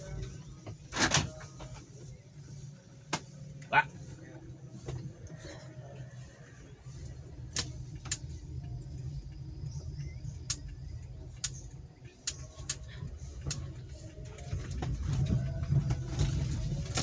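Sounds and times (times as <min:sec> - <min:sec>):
car engine low rumble: 0:00.0 - 0:17.0
sharp clicks: 0:07.4 - 0:14.4.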